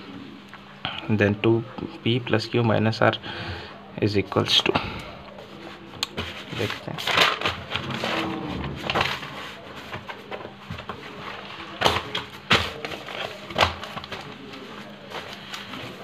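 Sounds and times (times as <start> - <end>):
scratchy handling rustling: 5.3 - 16.0.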